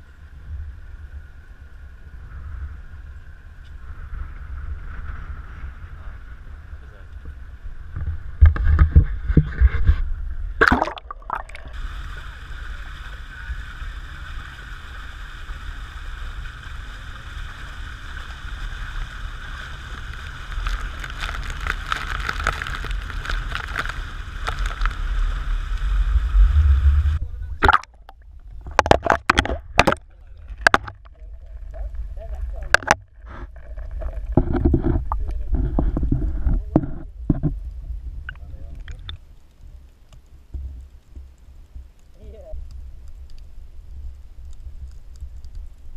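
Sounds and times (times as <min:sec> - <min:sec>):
water sloshing and gurgling: 0:08.0 - 0:11.8, 0:20.6 - 0:25.0, 0:26.4 - 0:37.6.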